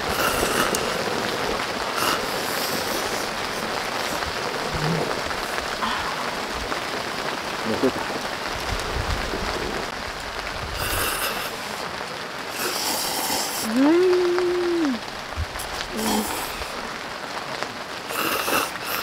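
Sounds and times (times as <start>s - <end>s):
rain shower falling: 0.0s - 19.0s.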